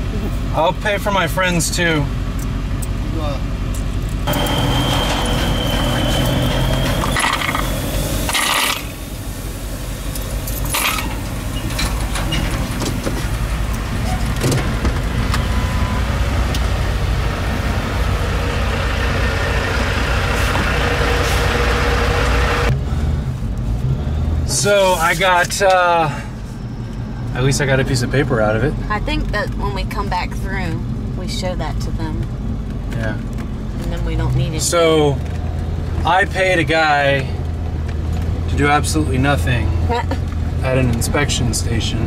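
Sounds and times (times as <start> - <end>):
truck engine running: 0.0 - 42.0
steady high tone: 4.3 - 12.0.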